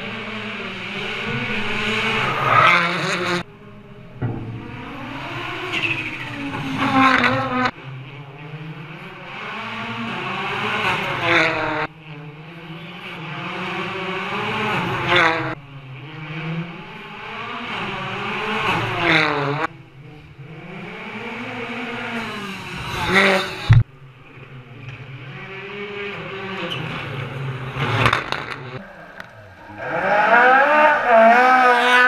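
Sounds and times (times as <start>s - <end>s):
rally car engines revving past: 0.0s - 32.0s.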